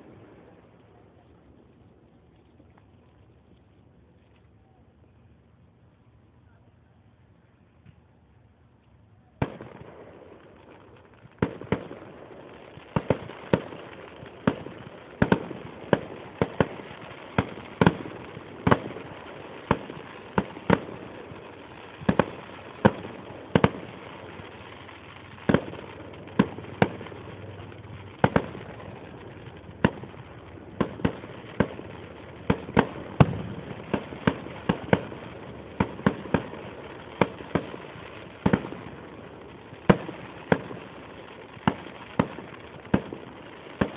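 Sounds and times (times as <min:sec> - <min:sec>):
fireworks bangs: 0:09.2 - 0:43.9.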